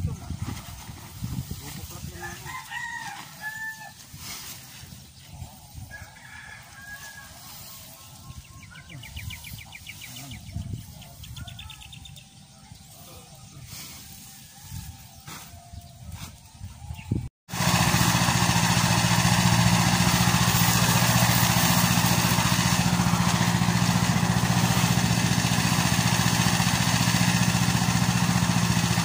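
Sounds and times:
rooster crowing: 2.2s - 4.0s, 5.9s - 7.6s.

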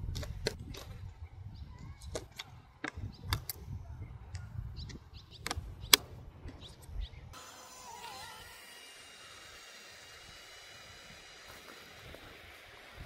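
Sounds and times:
wind rumbling on microphone: 0.0s - 7.4s
birds chirping: 1.1s - 7.4s.

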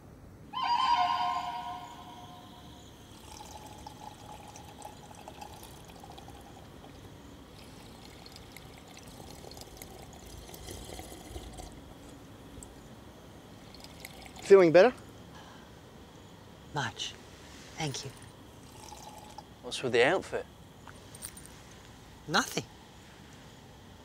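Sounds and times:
drink pouring into cup: 3.1s - 12.2s, 13.6s - 14.5s, 18.2s - 19.5s.

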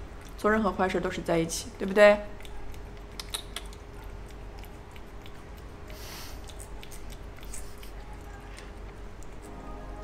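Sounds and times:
cat licking and chewing: 0.0s - 0.9s, 2.2s - 9.6s
cat sniffing: 2.4s - 8.4s.

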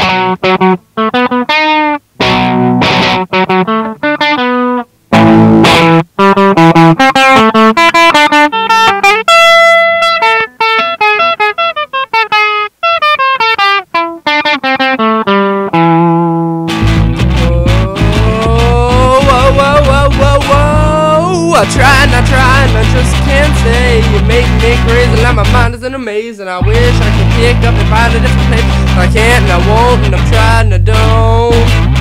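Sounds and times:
guitar quick single notes: 0.0s - 32.0s
guitar strumming short chords: 0.0s - 32.0s.

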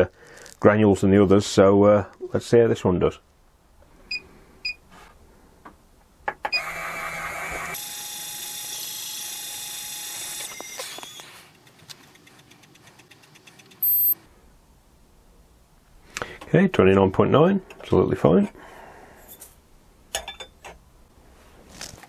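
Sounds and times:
motor whirring: 6.6s - 11.3s
fast faint ticking: 11.6s - 14.2s
short electronic beeps: 13.8s - 14.2s.

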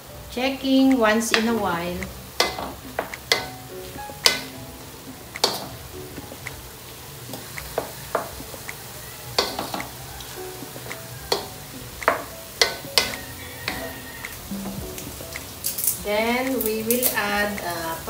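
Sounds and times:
pork sizzling: 0.0s - 18.0s.

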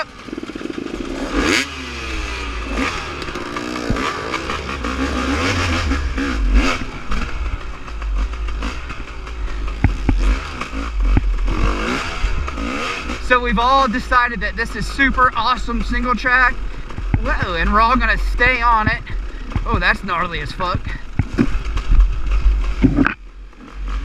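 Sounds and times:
dirt bike engine revving: 0.0s - 24.0s
bike clattering over bumps: 2.6s - 13.2s, 15.2s - 23.8s.

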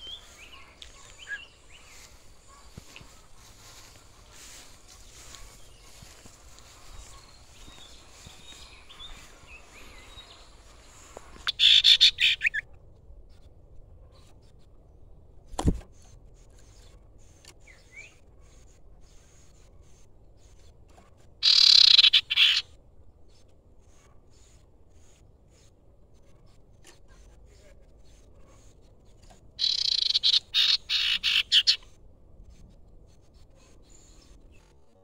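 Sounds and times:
bird trilled chatter: 0.0s - 12.6s, 21.4s - 22.7s, 29.3s - 31.9s
faint bird chirps: 0.0s - 14.8s, 15.9s - 22.6s, 26.3s - 31.9s.

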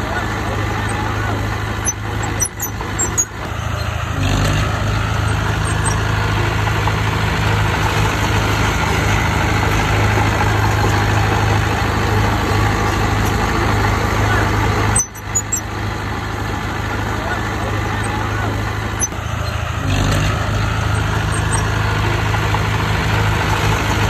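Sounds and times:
heavy machinery diesel engine: 0.0s - 24.0s.

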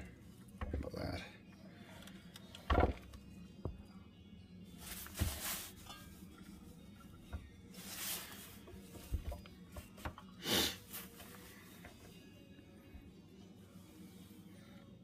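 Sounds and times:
faint background music: 0.0s - 15.0s
handling rustles: 4.8s - 6.5s, 7.2s - 10.2s, 10.8s - 12.1s.

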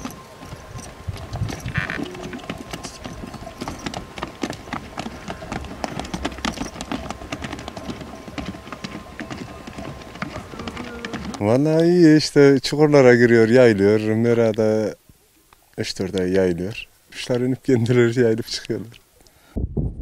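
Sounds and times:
horse hoofbeats on gravel: 0.0s - 12.2s.

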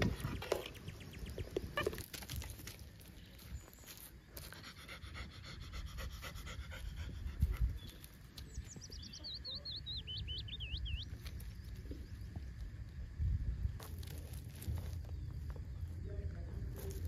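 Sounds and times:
puppy panting: 4.4s - 8.1s.

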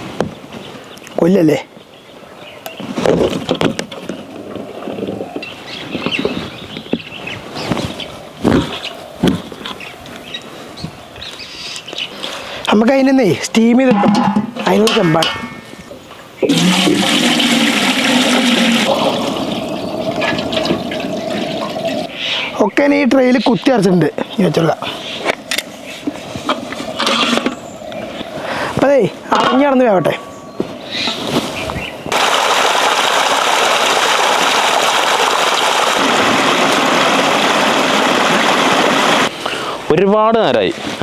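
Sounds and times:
water pouring into metal pot: 16.5s - 22.1s
stream rushing over rocks: 32.1s - 39.3s.

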